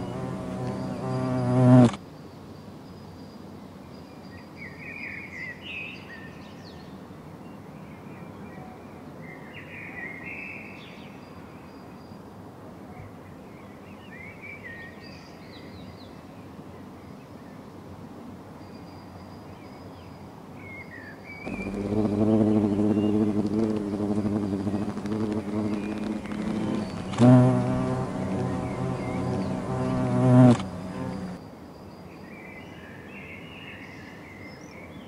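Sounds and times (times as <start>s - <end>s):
birds chirping: 0.0s - 1.9s, 21.5s - 31.4s
hornet wings buzzing: 0.0s - 2.0s, 21.5s - 31.4s
steady outdoor hiss: 0.0s - 35.0s.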